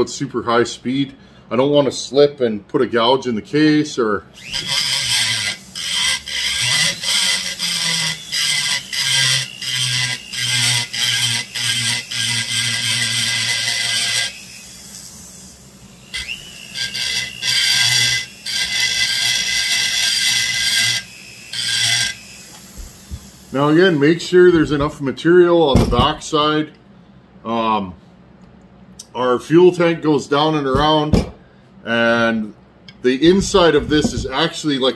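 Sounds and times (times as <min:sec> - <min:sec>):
motor humming: 0:04.4 - 0:10.3, 0:14.3 - 0:18.6, 0:20.9 - 0:24.0
rotary tool burr grinding metal: 0:04.4 - 0:24.0.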